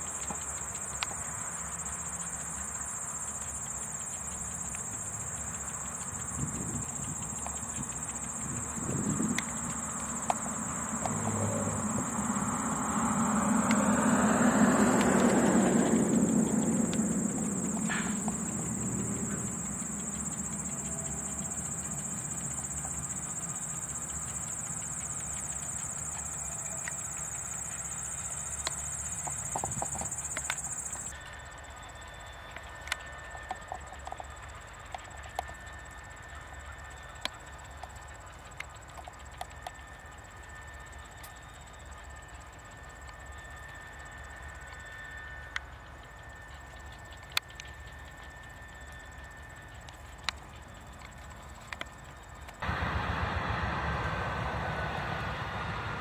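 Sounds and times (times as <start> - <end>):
distant low noise: 0.0 - 31.1, 52.6 - 56.0
light ticks: 0.0 - 31.3, 32.5 - 52.7
insects trilling: 0.0 - 53.2
faint steady hum: 0.0 - 56.0.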